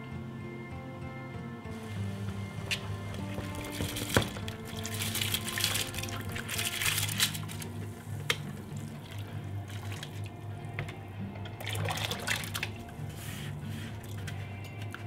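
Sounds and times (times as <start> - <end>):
rice sliding into water: 1.8 - 10.3
water pouring and dripping: 1.8 - 13.1.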